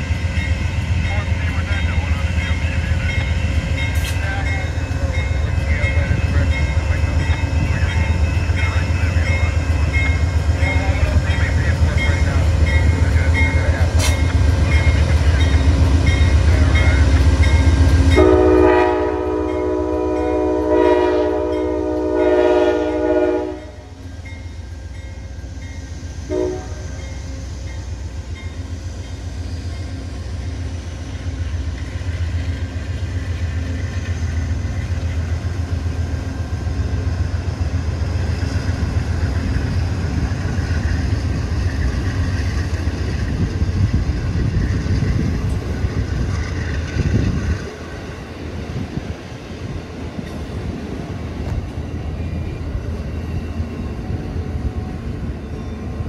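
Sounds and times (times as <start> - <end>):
diesel locomotive running hard: 0.0 - 56.0
train cars rumbling: 0.0 - 56.0
crossing bell ringing: 0.3 - 22.6, 23.4 - 30.1
train air horn: 18.1 - 23.9, 26.3 - 27.0.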